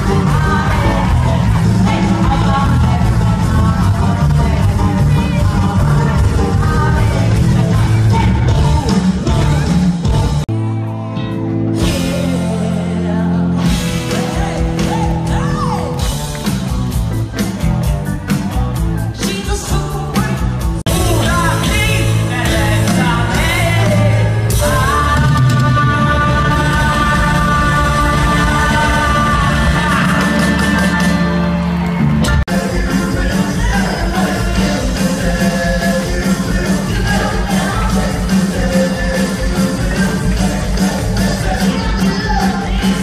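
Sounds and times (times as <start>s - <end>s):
live rock band with singing: 0.0s - 43.0s.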